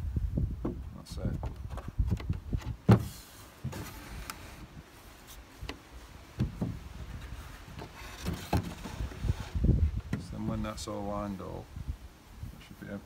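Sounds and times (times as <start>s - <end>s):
wooden chair parts knocking: 5.7s - 9.1s.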